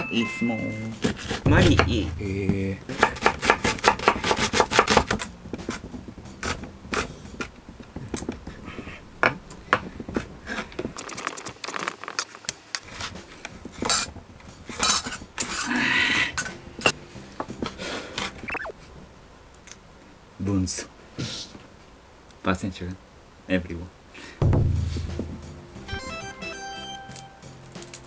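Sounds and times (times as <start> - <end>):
knife rasping on board: 1.0 - 1.6
knife chopping on wooden board: 1.0 - 7.1.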